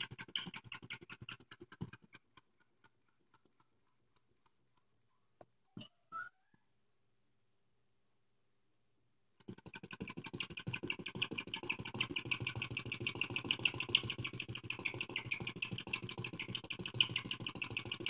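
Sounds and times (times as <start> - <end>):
small engine ticking clatter: 0.0 - 3.7, 9.6 - 18.0.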